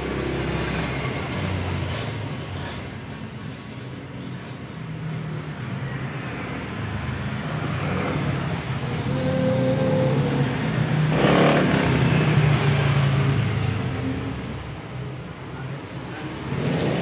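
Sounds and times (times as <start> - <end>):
vehicle engine humming: 7.6 - 15.3.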